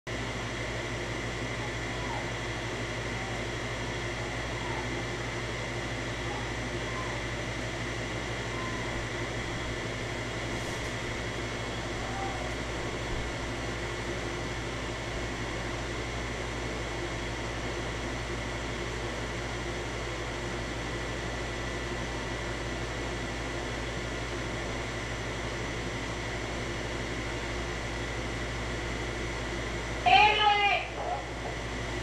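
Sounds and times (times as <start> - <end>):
steady hum and hiss: 0.1 - 32.0.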